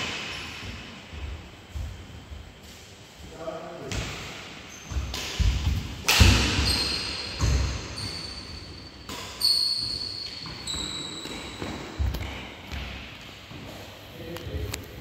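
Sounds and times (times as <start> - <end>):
shoe squeals: 4.7 - 5.1, 6.4 - 12.0
racket hitting shuttlecock: 4.9 - 7.9.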